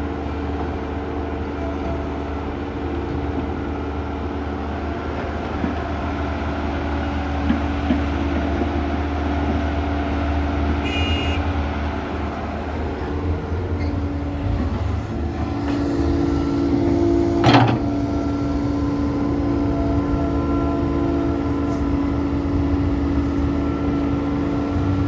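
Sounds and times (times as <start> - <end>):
excavator diesel engine running: 0.0 - 25.0
brief high-pitched tone: 10.8 - 11.4.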